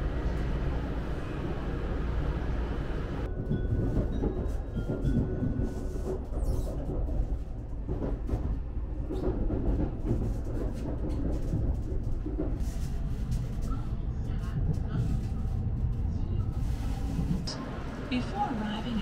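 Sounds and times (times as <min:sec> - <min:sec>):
train interior low rumble: 0:00.0 - 0:19.0.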